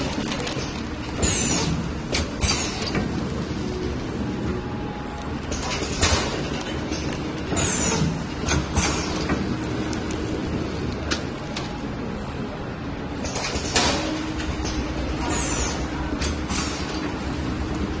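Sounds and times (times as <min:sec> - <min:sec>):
plastic bag crinkling: 0:00.0 - 0:01.8
packaging machine running: 0:00.0 - 0:18.0.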